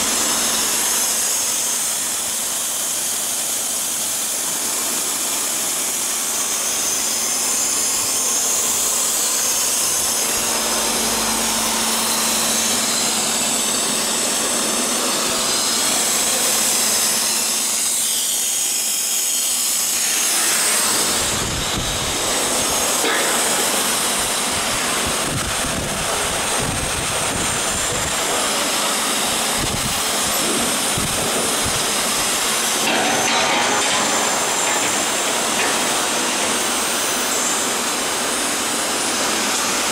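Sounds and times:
hissing machine-shop din: 0:00.0 - 0:39.9.

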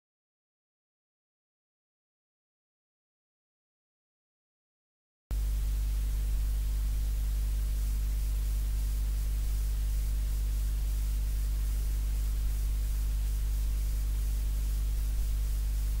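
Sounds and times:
even hiss: 0:05.3 - 0:16.0
low hum with steady tones: 0:05.3 - 0:16.0.

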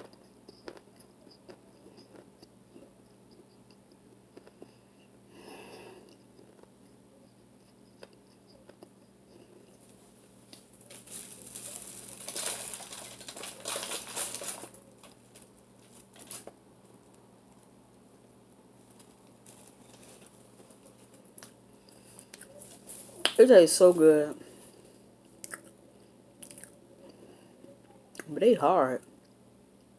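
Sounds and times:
rustling and crinkling from handling: 0:09.8 - 0:25.0.

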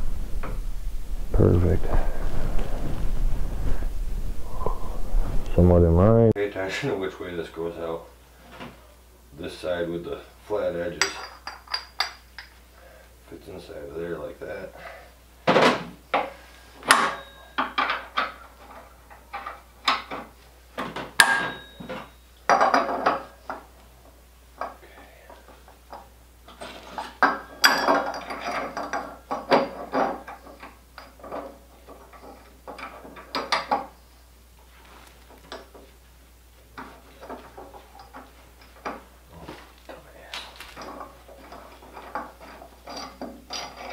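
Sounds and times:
sharp ringing metal knocks: 0:21.2 - 0:22.2.

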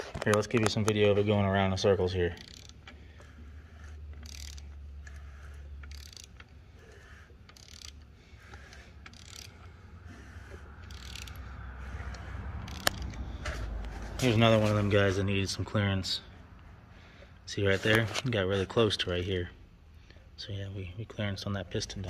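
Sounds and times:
engine turned over by hand: 0:00.0 - 0:15.2
wrench clicking: 0:01.7 - 0:09.8, 0:10.8 - 0:13.6.

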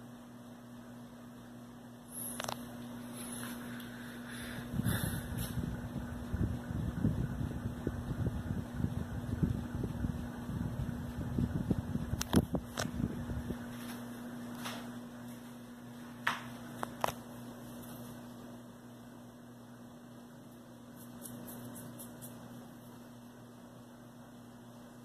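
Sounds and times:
ceiling fan motor hum: 0:00.0 - 0:25.0
wind rumble on microphone: 0:04.6 - 0:13.8.

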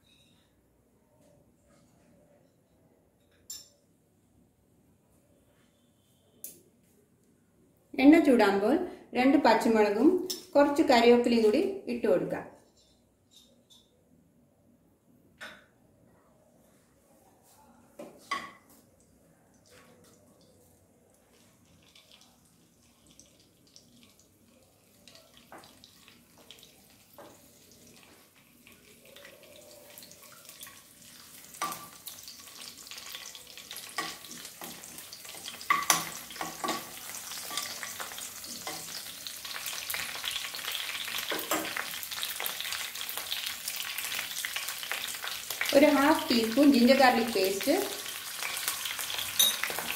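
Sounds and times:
chillies sizzling in hot oil: 0:21.2 - 0:49.9.

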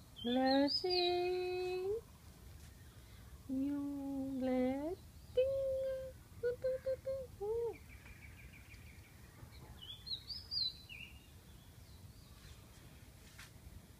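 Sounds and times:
faint outdoor background noise: 0:00.0 - 0:13.9
small bird chirping: 0:02.6 - 0:12.7.

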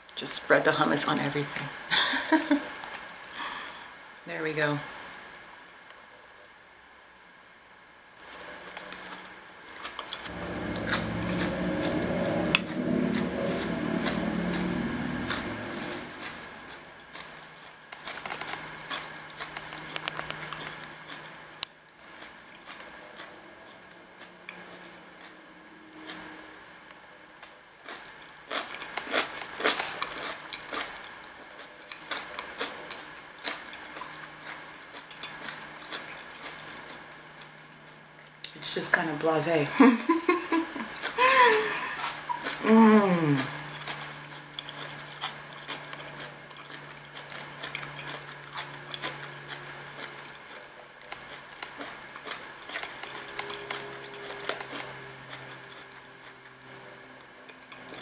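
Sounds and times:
close-up chewing crunches: 0:08.2 - 0:25.4, 0:27.4 - 0:38.0, 0:43.2 - 0:58.0.

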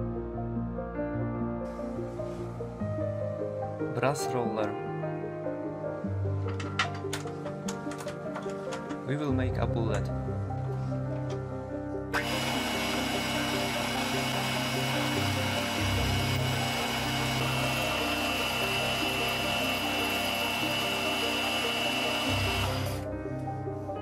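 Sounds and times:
background music: 0:00.0 - 0:24.0
lathe motor whining: 0:12.2 - 0:23.0.

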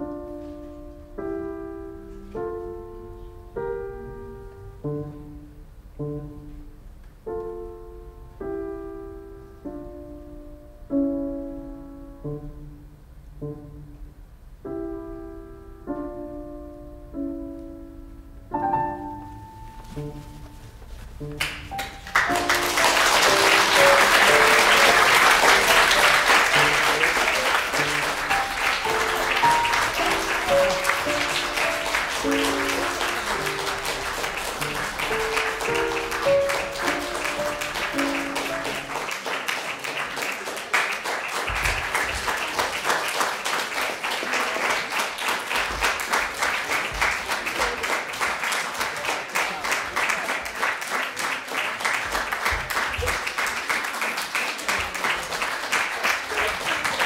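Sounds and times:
recorded melody music: 0:00.0 - 0:39.4
audience applauding: 0:21.3 - 0:57.0.

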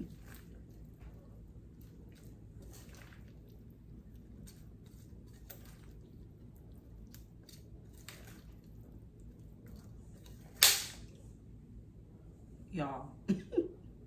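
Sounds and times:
spoon stirring wet salad: 0:00.0 - 0:11.2.

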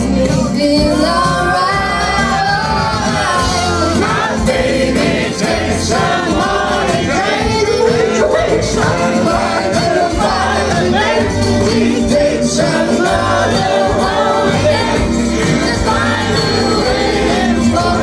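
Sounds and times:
woman singing into a microphone: 0:00.0 - 0:03.8
acoustic guitar: 0:00.0 - 0:18.0.

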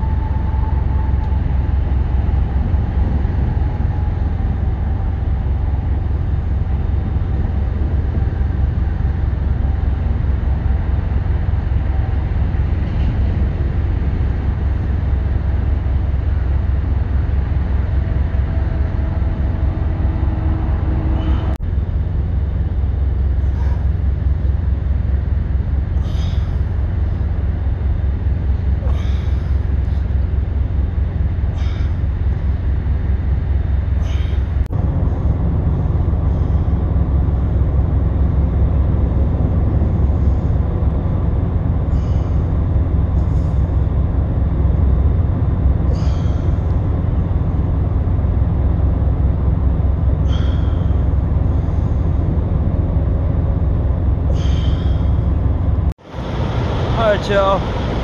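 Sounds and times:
diesel trucks idling: 0:00.0 - 0:58.0
short hissing: 0:54.3 - 0:55.2.

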